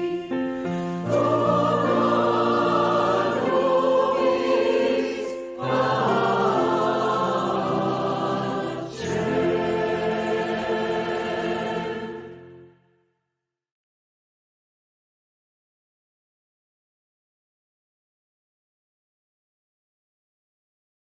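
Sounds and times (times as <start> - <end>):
mixed choir singing chords: 0.0 - 12.8.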